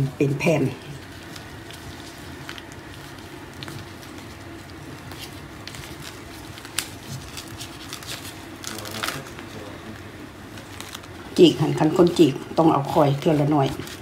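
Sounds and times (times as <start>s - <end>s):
plastic gloves rustling: 0.0s - 14.0s
steady low hum: 0.0s - 14.0s.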